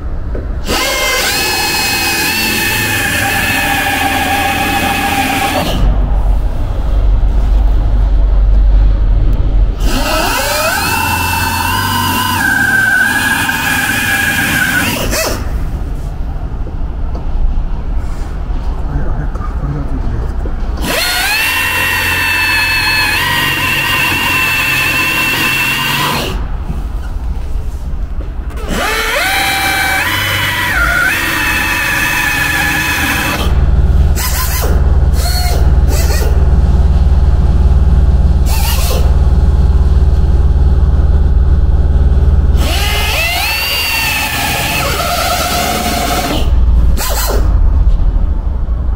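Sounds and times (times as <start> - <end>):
pulsing low machine drone: 0.0 - 48.9
air drill whining: 0.6 - 5.9, 9.8 - 15.8, 20.8 - 27.1, 28.5 - 36.4, 38.4 - 39.4, 42.5 - 47.5.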